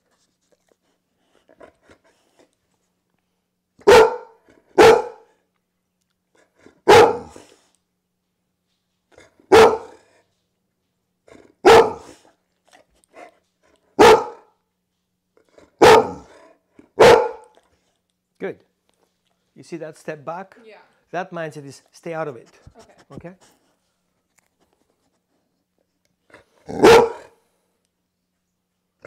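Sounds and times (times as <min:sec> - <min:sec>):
dog barking: 0:03.8 - 0:05.3, 0:06.8 - 0:07.4, 0:09.5 - 0:10.0, 0:11.6 - 0:12.2, 0:14.0 - 0:14.5, 0:15.8 - 0:16.4, 0:17.0 - 0:17.6, 0:26.7 - 0:27.4.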